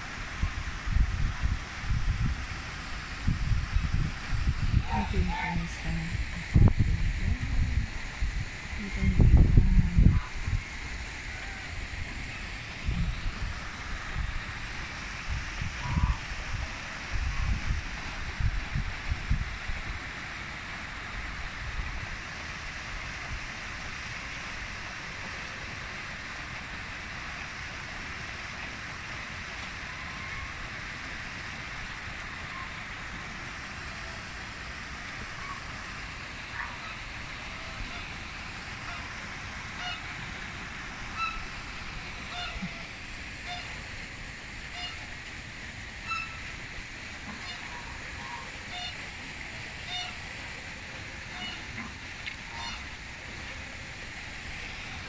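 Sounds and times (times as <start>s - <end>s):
waterfall and stream rushing: 0.0s - 55.0s
geese honking: 39.8s - 40.1s, 41.1s - 41.6s, 42.2s - 43.8s, 44.7s - 45.0s, 46.0s - 46.4s, 47.3s - 49.0s, 49.9s - 50.2s, 51.3s - 51.9s, 52.5s - 53.0s.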